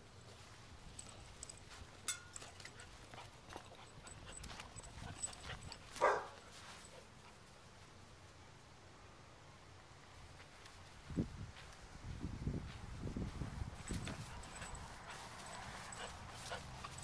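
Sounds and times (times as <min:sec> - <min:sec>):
footsteps on grass: 0:04.4 - 0:07.4, 0:10.3 - 0:17.0.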